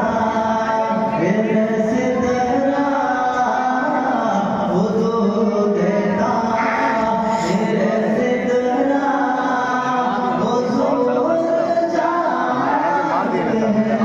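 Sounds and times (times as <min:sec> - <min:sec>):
man singing devotional song: 0:00.0 - 0:14.0.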